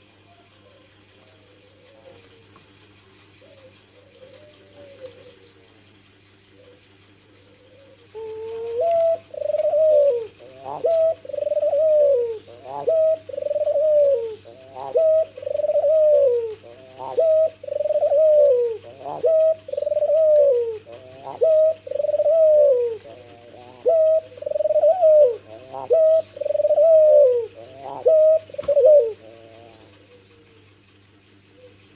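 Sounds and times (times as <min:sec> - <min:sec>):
dove cooing: 0:00.0 - 0:05.8, 0:06.5 - 0:31.9.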